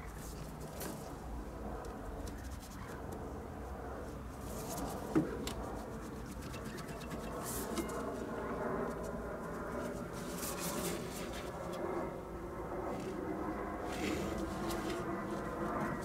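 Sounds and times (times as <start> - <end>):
faint rustling and scraping: 4.0 - 12.1, 12.8 - 16.0.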